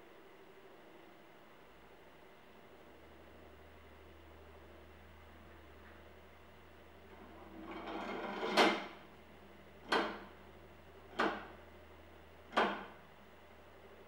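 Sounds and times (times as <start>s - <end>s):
faint steady hum: 0.0s - 14.0s
mechanism scraping: 7.2s - 9.0s.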